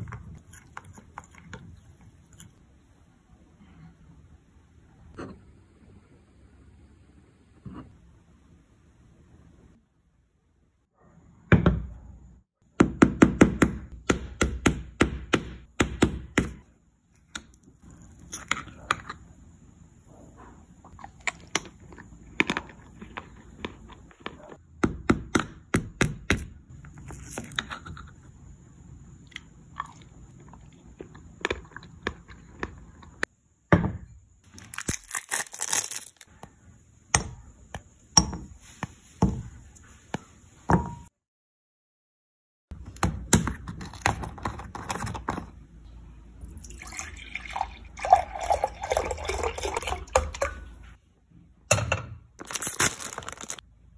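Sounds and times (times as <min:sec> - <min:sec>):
chocolate shell cracking: 0:34.5 - 0:36.3
wrapper crinkling: 0:34.5 - 0:36.3, 0:52.4 - 0:53.6.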